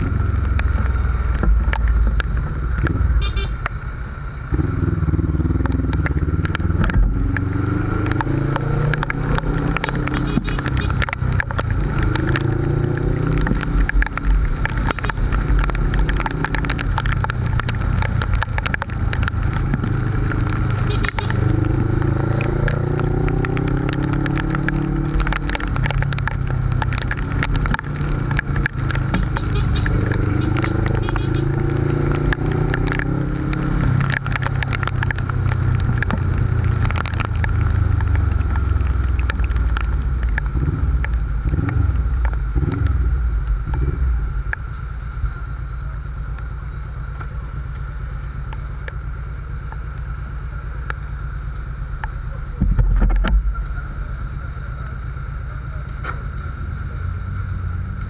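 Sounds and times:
motorcycle engine shifting gears: 0.0 - 58.0
sharp ticks: 4.5 - 52.3.

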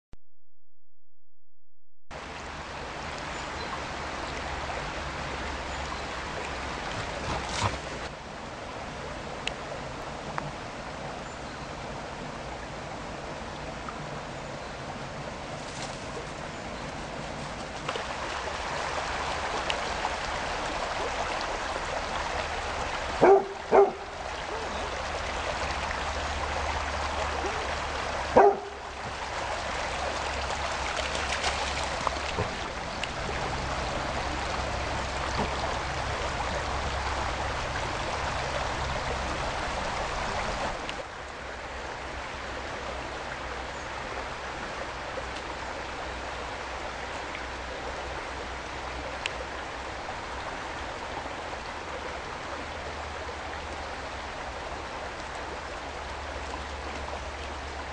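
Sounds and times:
stream water rushing: 2.2 - 57.9
dog barking: 23.2 - 24.7, 28.4 - 28.8.

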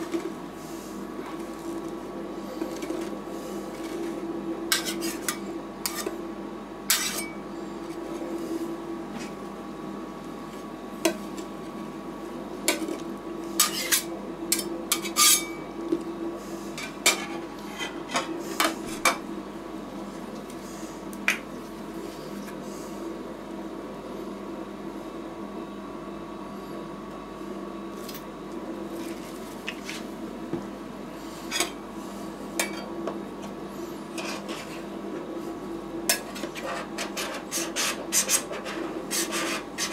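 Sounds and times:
refrigeration unit hum: 0.0 - 39.9
metal spatulas scraping steel plate: 4.7 - 6.1, 6.9 - 7.4, 13.6 - 14.1, 14.9 - 15.6.

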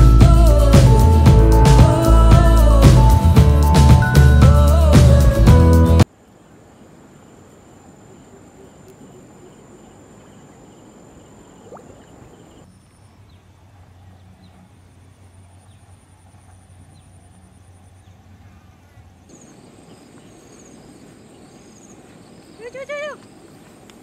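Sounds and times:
intro music: 0.0 - 6.1
insects trilling: 6.1 - 24.0.

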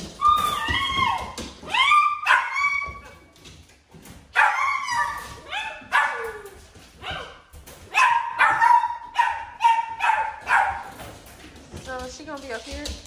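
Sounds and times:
puppy yipping and barking: 1.8 - 3.1, 7.0 - 10.9.

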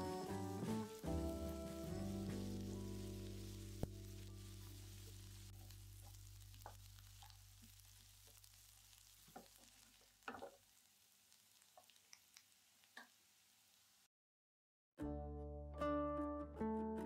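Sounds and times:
background music: 0.0 - 5.0, 15.0 - 17.0
onions sizzling in a pan: 0.0 - 14.1.

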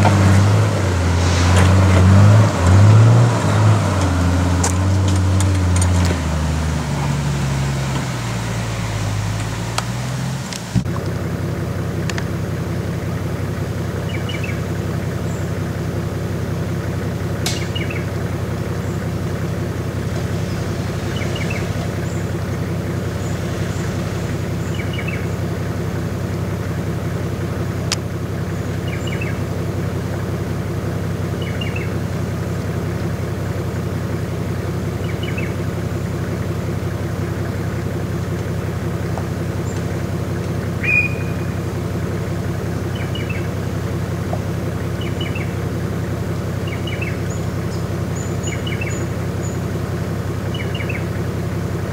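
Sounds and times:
car engine running at low revs: 0.0 - 51.9
bird chirping: 14.0 - 15.5, 17.5 - 18.2, 20.1 - 25.5, 28.6 - 29.4, 31.4 - 32.0, 35.0 - 35.6, 40.8 - 41.6, 42.8 - 43.6, 44.9 - 45.6, 46.6 - 49.7, 50.4 - 51.2.

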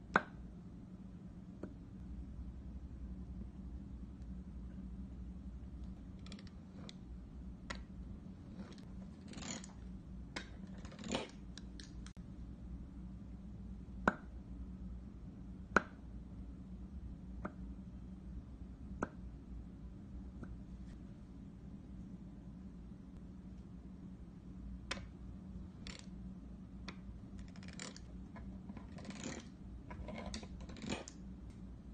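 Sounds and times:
steady low hum: 0.0 - 31.9
plastic tools scraping dough: 8.4 - 9.8, 10.5 - 12.0, 27.4 - 31.2.

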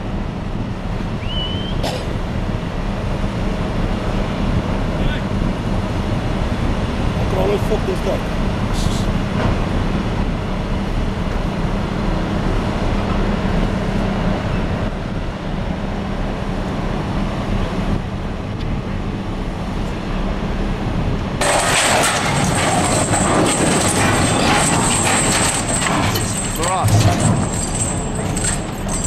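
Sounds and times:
crane machinery humming: 0.0 - 29.0
steel crashing and clattering: 21.4 - 29.0.

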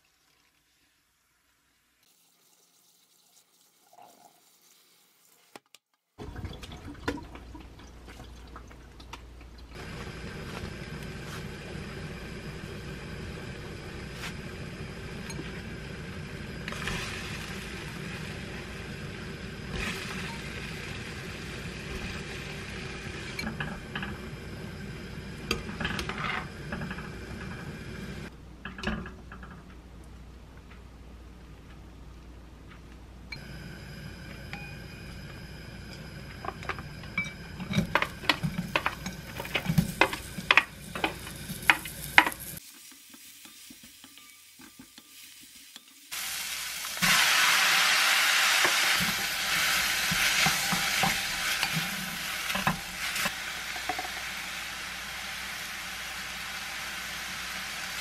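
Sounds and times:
water boiling hard in a pot: 9.7 - 28.3, 35.7 - 43.2, 46.1 - 58.0.

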